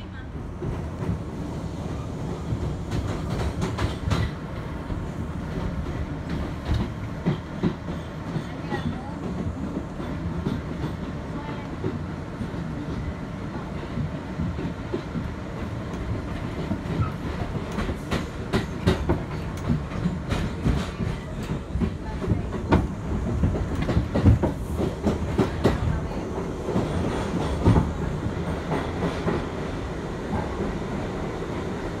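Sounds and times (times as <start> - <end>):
steady train rumble: 0.0 - 32.0
train wheels clacking over rail joints: 2.5 - 29.6.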